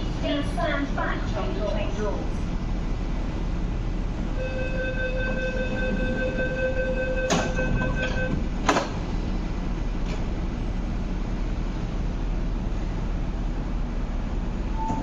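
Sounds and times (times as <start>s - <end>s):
train door warning buzzer: 4.4s - 8.4s
train doors thudding shut: 7.1s - 9.1s.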